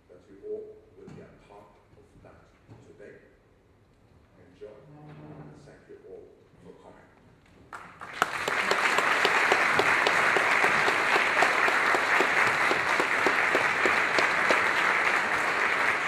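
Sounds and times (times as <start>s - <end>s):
audience applauding: 7.7s - 16.0s.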